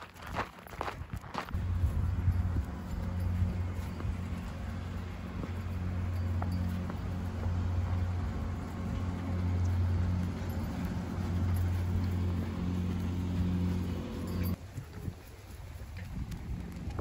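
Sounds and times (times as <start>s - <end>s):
ride-on lawn mower engine: 1.5s - 14.6s.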